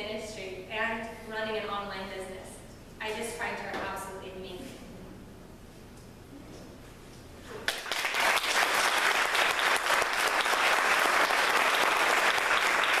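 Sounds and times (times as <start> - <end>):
audience applauding: 7.6 - 13.0.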